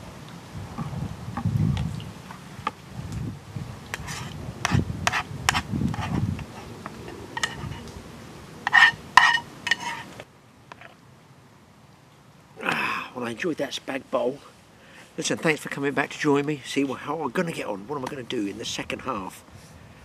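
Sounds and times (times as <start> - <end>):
metal utensil scraping a pot: 3.9 - 7.8, 8.6 - 10.1.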